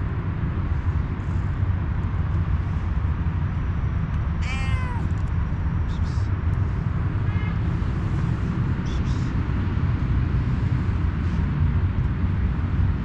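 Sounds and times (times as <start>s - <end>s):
low steady rumble: 0.0s - 13.0s
cat meowing: 4.4s - 5.2s.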